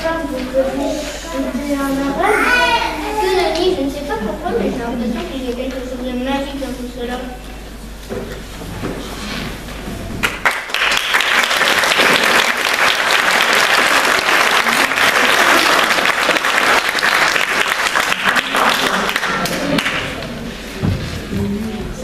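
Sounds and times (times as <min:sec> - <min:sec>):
audience applauding: 0:10.2 - 0:20.3.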